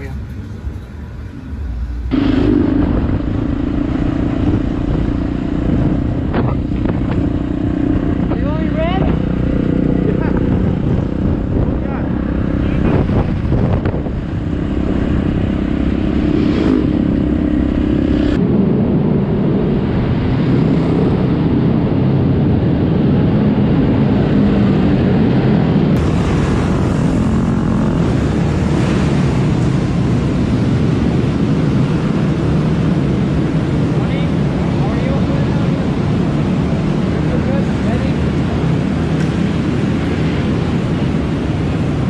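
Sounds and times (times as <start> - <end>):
motorcycle engine running: 2.1 - 18.4, 26.0 - 31.3.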